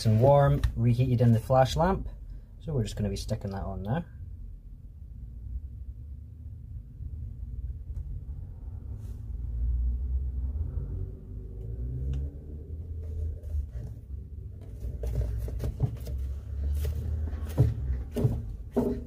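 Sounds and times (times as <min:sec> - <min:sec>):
steady low rumble: 0:04.1 - 0:15.6
small knocks: 0:14.6 - 0:19.0.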